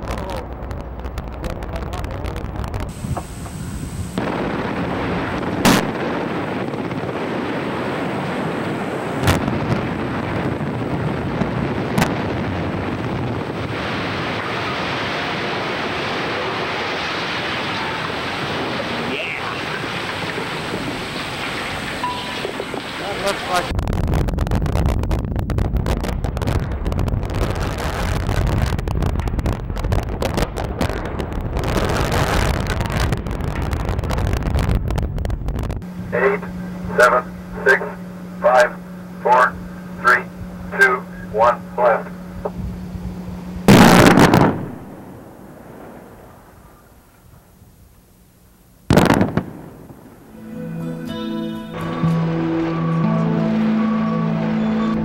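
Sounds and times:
wind buffeting microphone: 0.0 - 16.6, 17.4 - 41.5, 42.2 - 46.8
sharp explosive blast: 0.0 - 36.4, 43.6 - 46.8, 48.9 - 50.4
continuous rushing noise: 13.6 - 23.8, 35.8 - 43.7
steady low hum: 34.8 - 51.1
person speaking: 36.2 - 42.2.

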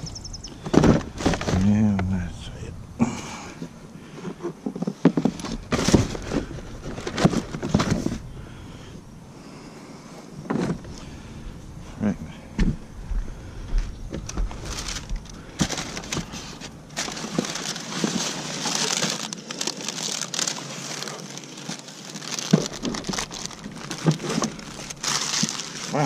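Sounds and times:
trash crinkling and crunching: 0.0 - 8.8, 13.7 - 26.0.

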